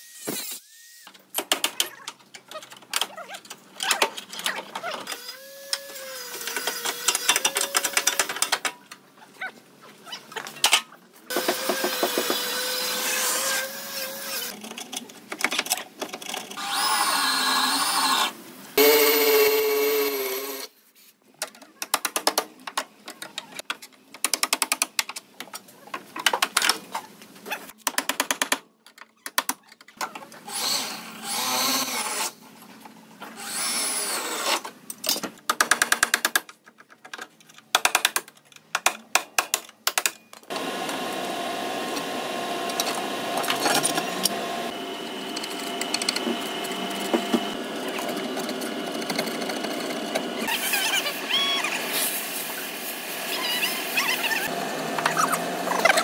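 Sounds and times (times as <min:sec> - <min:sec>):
power tool whining: 0:16.6 - 0:20.7, 0:40.5 - 0:51.9.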